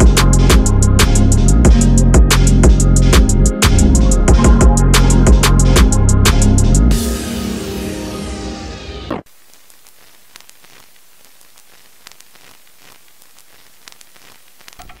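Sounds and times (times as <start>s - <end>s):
background music: 0.0s - 9.2s
static crackle: 9.1s - 15.0s.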